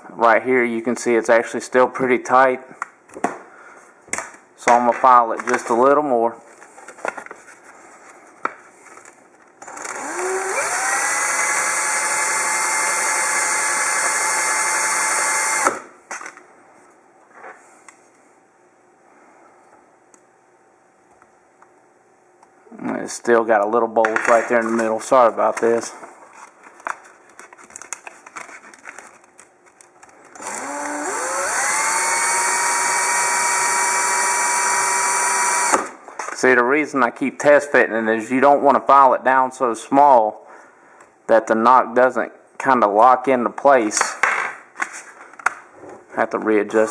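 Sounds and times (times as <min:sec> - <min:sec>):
cordless drill whining: 0:09.6 - 0:15.8, 0:30.4 - 0:35.9.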